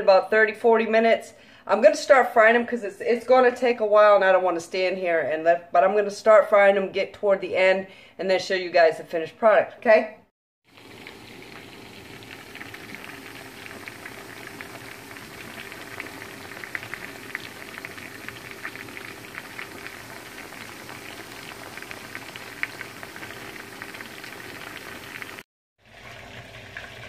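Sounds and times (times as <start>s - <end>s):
chicken frying in hot oil: 10.7s - 27.0s.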